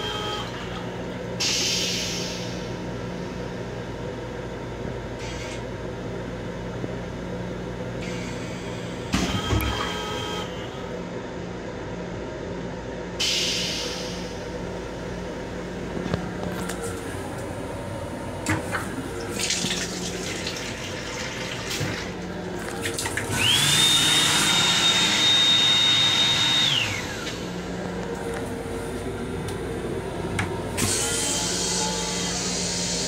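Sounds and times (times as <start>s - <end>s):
train toilet flushing: 18.4s - 27.6s.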